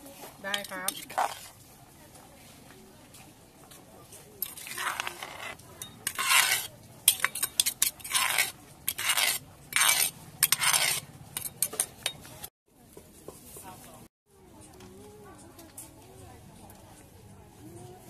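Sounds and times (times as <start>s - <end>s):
metal spoon scraping a mortar: 0.3s - 1.7s, 4.4s - 12.5s.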